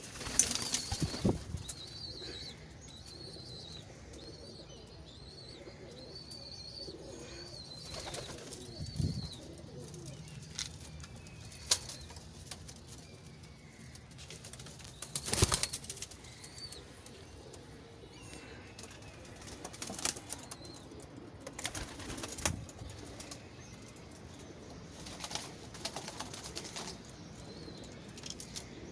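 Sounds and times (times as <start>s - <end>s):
pigeon wing flaps: 14.5s - 16.1s.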